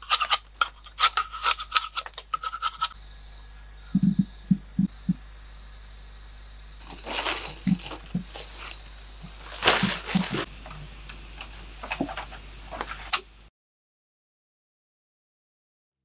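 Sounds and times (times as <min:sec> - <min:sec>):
soft thumps: 0:03.9 - 0:05.2
dry leaves rustling and crackling: 0:06.8 - 0:13.1.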